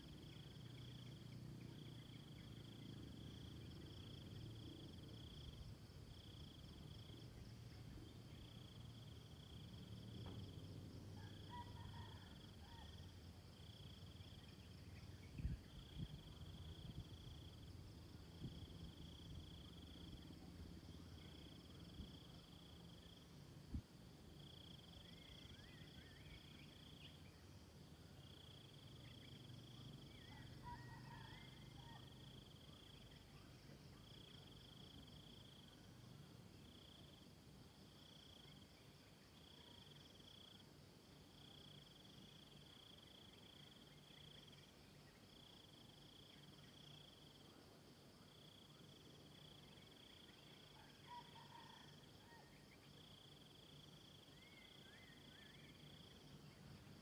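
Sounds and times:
insects trilling: 0:24.2 - 0:57.0
faint bird chirps: 0:54.1 - 0:57.0.

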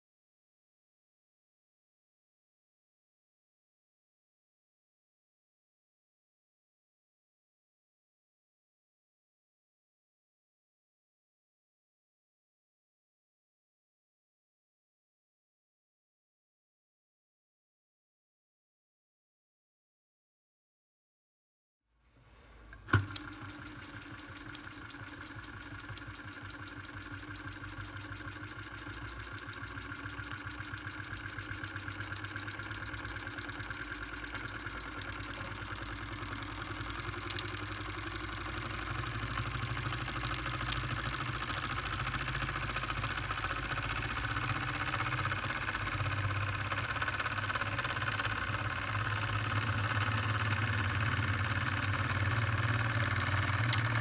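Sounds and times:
toy steam engine beating: 0:23.4 - 0:54.0.

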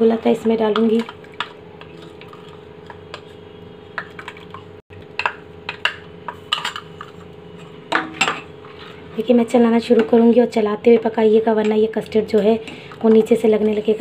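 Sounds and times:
spoon tapping metal pot: 0:07.9 - 0:08.4.

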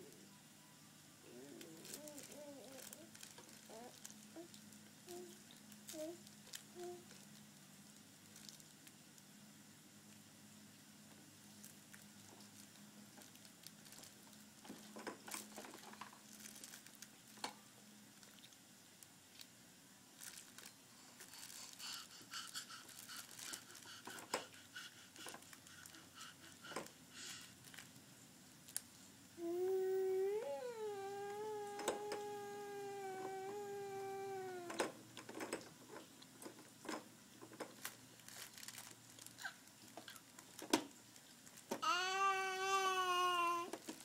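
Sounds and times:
baby vocalizing: 0:01.3 - 0:03.1, 0:03.7 - 0:04.5, 0:21.3 - 0:27.5
plastic toys clicking and rattling: 0:43.6 - 0:44.0.

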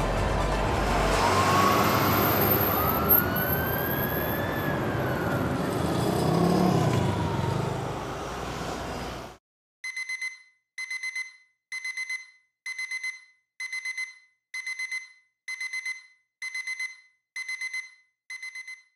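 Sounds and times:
phone alarm beeping: 0:09.9 - 0:18.9.

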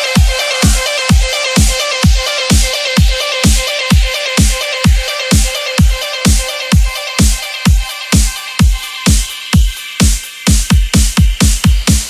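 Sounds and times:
electronic dance music: 0:00.0 - 0:12.0
heavy kick drum: 0:00.0 - 0:12.0.

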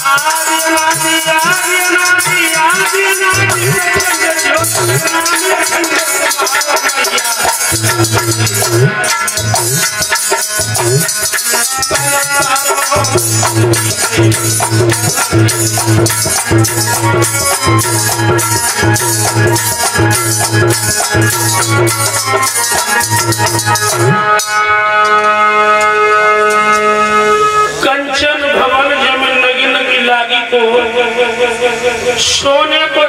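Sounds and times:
fast rattling percussion: 0:00.0 - 0:25.3
instrumental melody: 0:00.0 - 0:27.8
low drum beat: 0:00.7 - 0:24.2.

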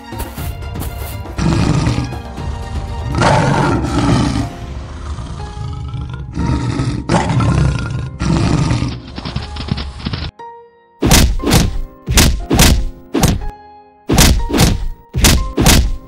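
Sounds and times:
background music: 0:00.0 - 0:16.0
cartoon animal roars: 0:03.2 - 0:09.0.

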